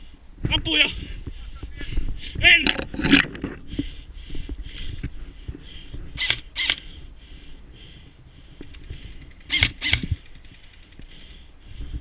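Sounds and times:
faint rapid clicking: 4.3s - 5.2s, 8.6s - 11.5s
airsoft rifle shots: 9.2s - 10.5s.

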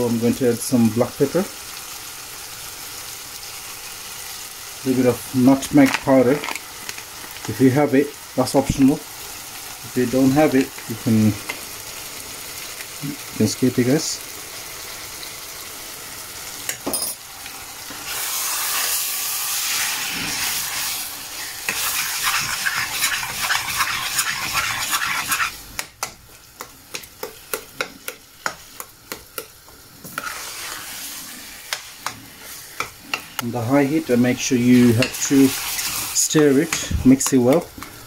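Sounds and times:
meat sizzling in a saucepan: 0.0s - 38.0s
metal spoon scraping a pan: 19.7s - 25.6s, 30.0s - 33.4s, 34.7s - 37.4s.

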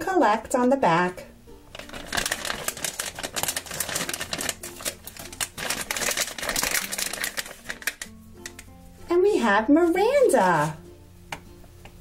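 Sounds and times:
foil packet crinkling: 1.7s - 8.6s.

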